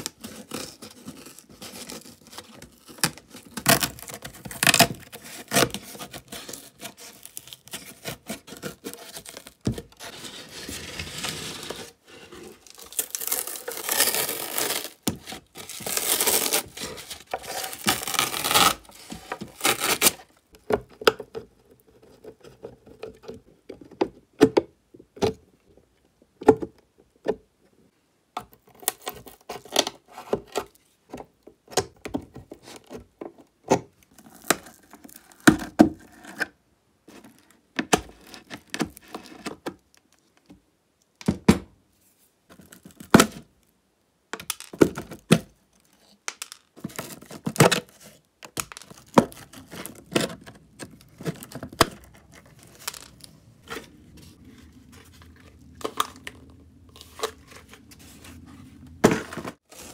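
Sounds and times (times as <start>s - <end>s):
covering material tearing: 12.6s - 15.0s, 15.6s - 16.8s, 17.5s - 18.9s, 19.6s - 20.2s.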